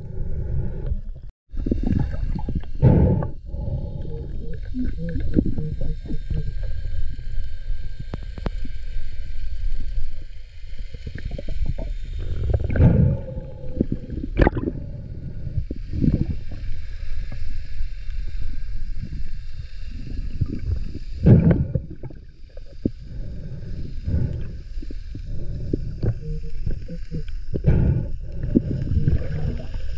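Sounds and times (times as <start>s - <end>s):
underwater rumble of water: 0.0s - 29.9s
water gurgling rushes: 9.9s - 17.3s, 19.9s - 22.8s, 24.4s - 29.9s.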